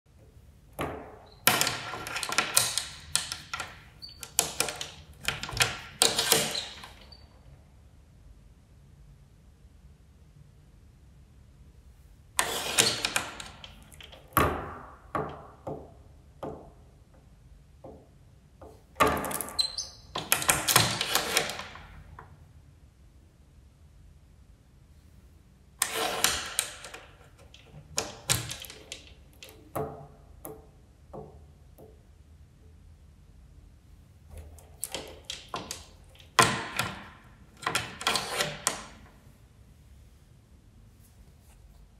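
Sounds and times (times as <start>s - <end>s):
door chain lock rattling: 1.4s - 7.1s.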